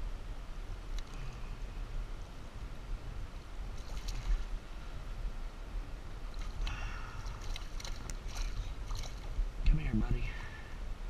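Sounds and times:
muffled creek water rumble: 0.0s - 11.0s
splashing or rustling: 3.8s - 4.6s, 6.3s - 9.5s.

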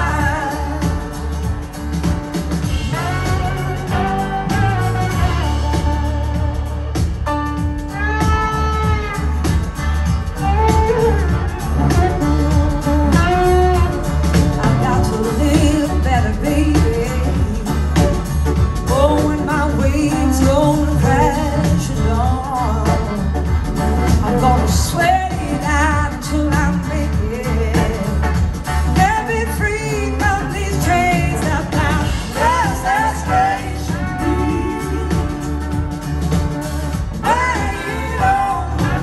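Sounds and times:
woman singing: 0.0s - 6.4s, 11.9s - 39.0s
pulsing bass beat: 0.0s - 26.0s
blues-rock band playing: 0.0s - 39.0s.

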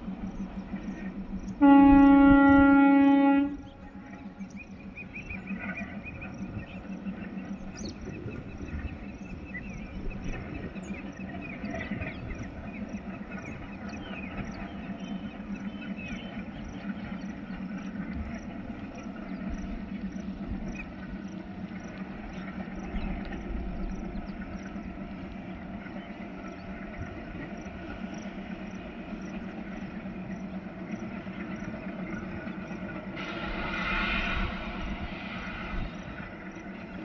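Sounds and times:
diesel locomotives droning: 0.0s - 37.0s
loud multi-tone horn: 1.6s - 3.6s.

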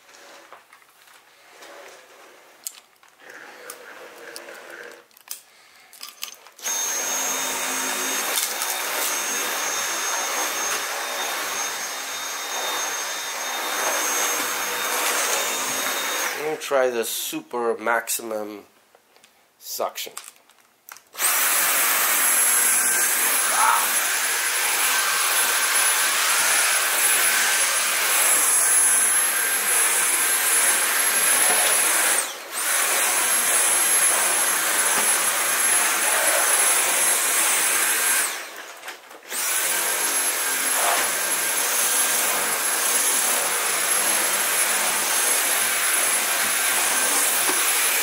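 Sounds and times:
vacuum cleaner high whine: 6.6s - 16.6s, 21.2s - 48.0s.

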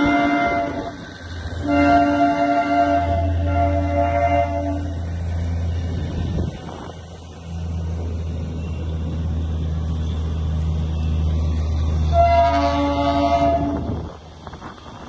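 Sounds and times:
train horn: 0.0s - 5.0s, 12.0s - 14.1s
train rumbling past: 0.0s - 15.0s.

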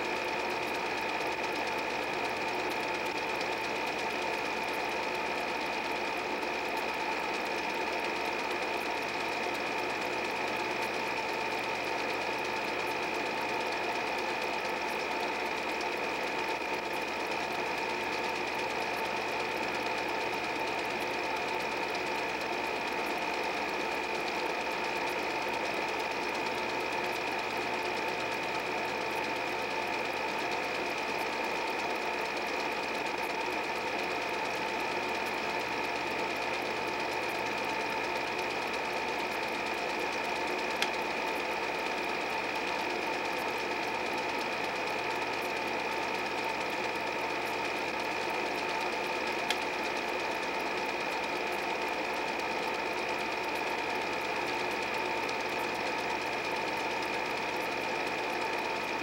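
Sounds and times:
movie projector whirring: 0.0s - 59.0s.

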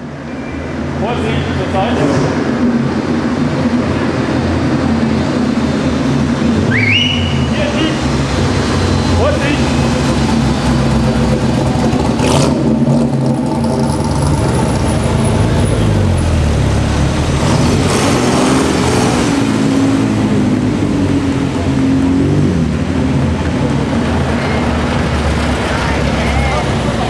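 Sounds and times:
sports car engines accelerating: 0.0s - 27.0s.

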